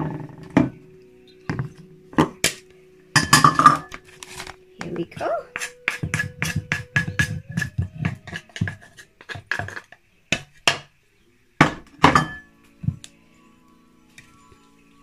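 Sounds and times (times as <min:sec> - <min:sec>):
wooden spoon tapping mortar: 0:04.8 - 0:10.9
mortar knocks: 0:05.6 - 0:10.9, 0:11.6 - 0:13.0.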